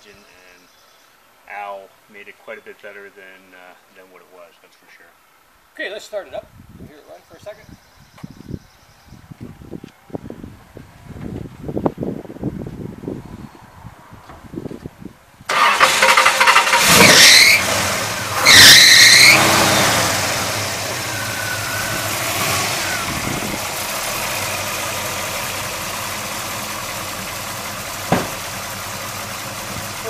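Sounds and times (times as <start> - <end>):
car engine starting and revving: 15.5 - 30.0
high squeak on revs: 18.4 - 19.8.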